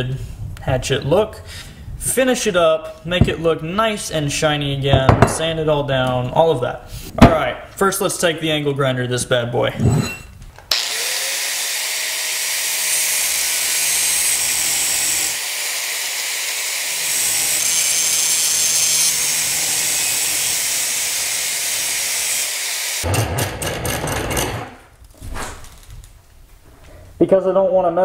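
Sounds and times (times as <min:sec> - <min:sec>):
angle grinder grinding steel: 0:10.7 - 0:24.6.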